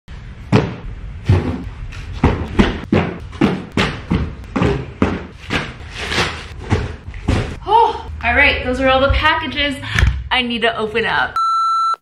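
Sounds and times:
cardboard boxes thumping on floor: 0.5 - 7.6.

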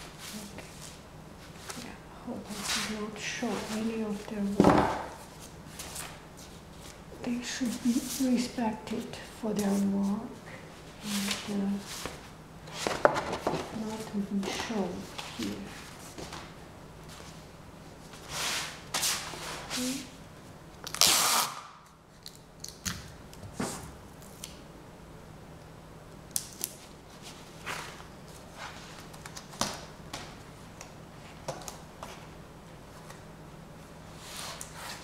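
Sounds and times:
tape and paper rustling and ripping: 20.8 - 22.9.

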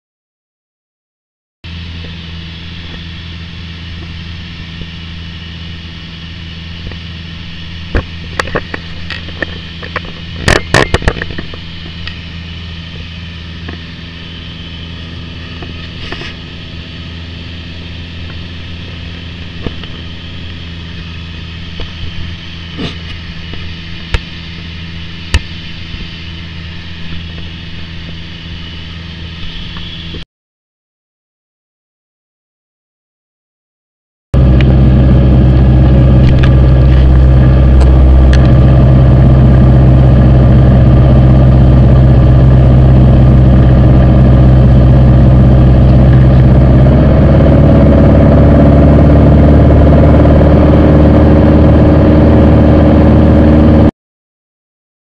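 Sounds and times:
aircraft engine droning in cabin: 1.6 - 30.2, 34.4 - 53.9.

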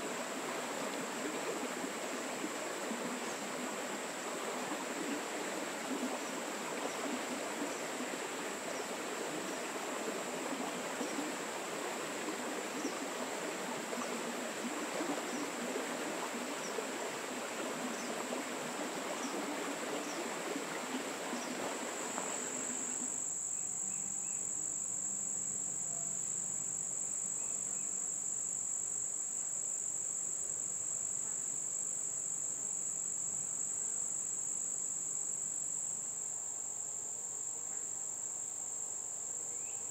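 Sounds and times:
light rain on a pond: 0.0 - 23.3
insects trilling: 0.0 - 39.9.

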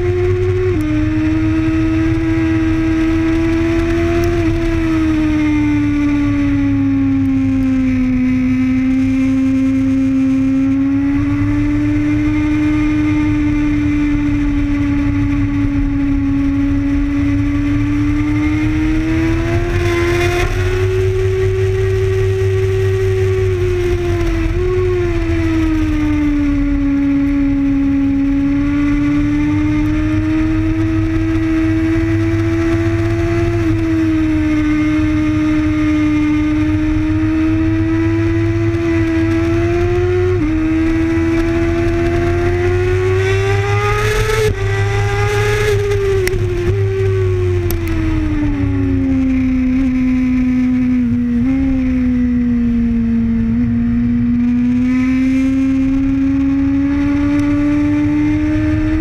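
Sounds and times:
motorcycle engine revving: 0.0 - 59.0
wind rush on microphone: 0.0 - 59.0.

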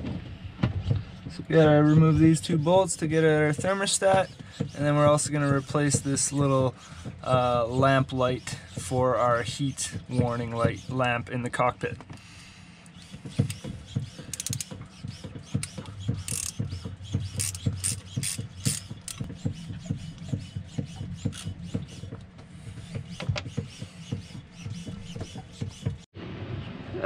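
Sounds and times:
socket ratchet clicking: 13.4 - 14.7, 15.6 - 16.6, 17.3 - 19.3.

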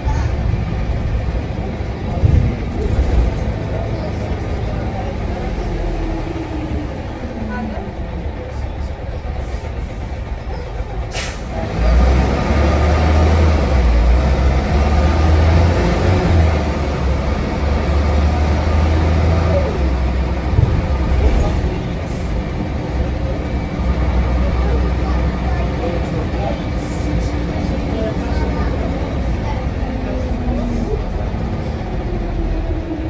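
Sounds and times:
diesel bus engine rumble: 0.0 - 33.0
pneumatic air hiss: 11.1 - 11.5.

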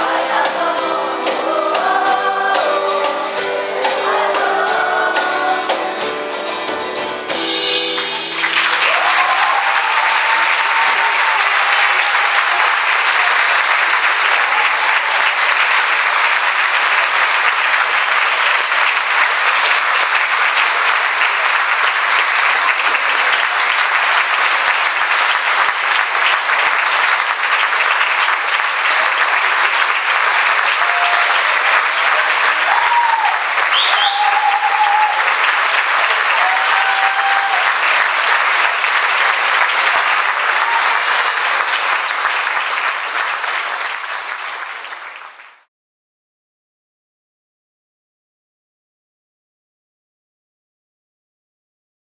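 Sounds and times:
audience applauding: 7.6 - 45.7
people cheering: 7.9 - 45.7
short whistle: 33.7 - 34.4.

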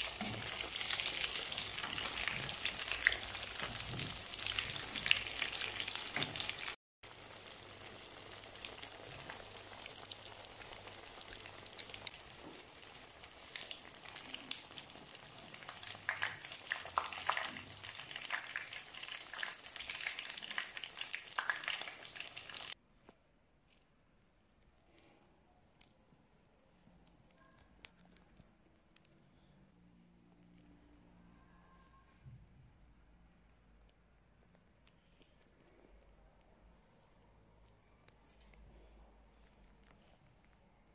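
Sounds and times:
oil sizzling and crackling: 0.0 - 22.8.

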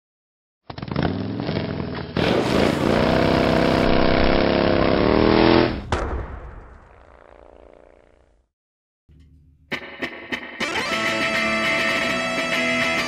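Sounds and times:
motor engine revving: 0.8 - 5.9.

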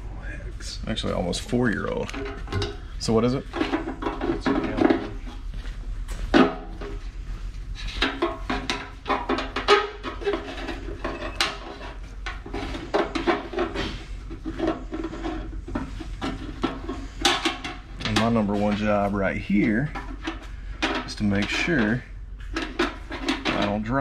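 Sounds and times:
tools clinking on metal tank: 2.1 - 5.2.

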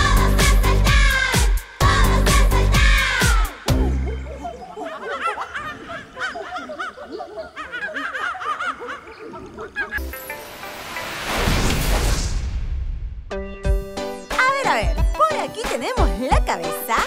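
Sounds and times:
cartoon monkey chatter: 3.2 - 10.1.

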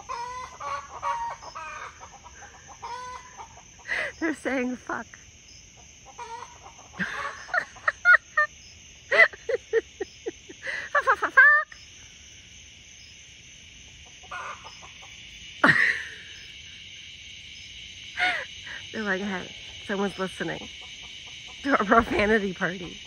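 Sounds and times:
chickens clucking: 0.0 - 4.2, 5.8 - 8.4, 13.9 - 17.0, 18.2 - 23.0.

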